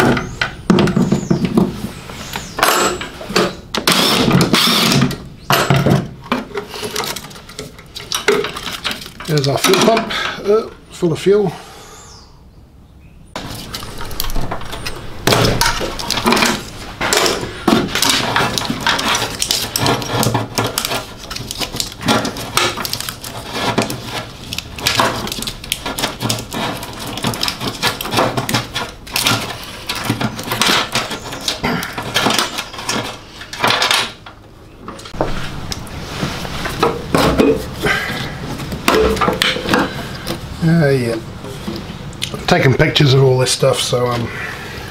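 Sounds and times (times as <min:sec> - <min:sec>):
metal fittings clattering and knocking: 0:04.4 - 0:10.3, 0:13.4 - 0:35.2.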